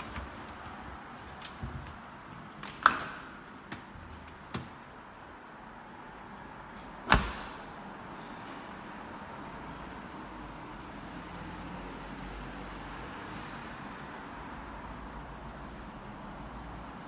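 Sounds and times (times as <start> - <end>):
cabinet doors opening and shutting: 7.0 - 7.6.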